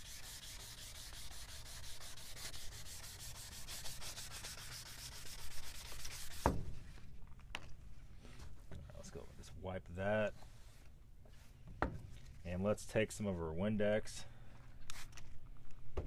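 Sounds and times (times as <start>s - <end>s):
sandpaper rubbing on plastic: 0.0s - 6.6s
sharp thump: 6.4s - 6.8s.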